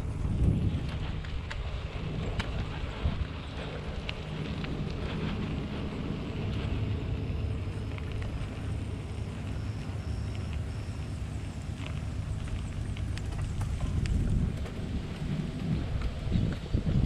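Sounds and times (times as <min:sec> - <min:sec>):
bicycle road noise: 0:00.0 - 0:17.0
wind rumble on microphone: 0:00.0 - 0:17.0
faint clicks: 0:07.3 - 0:16.6.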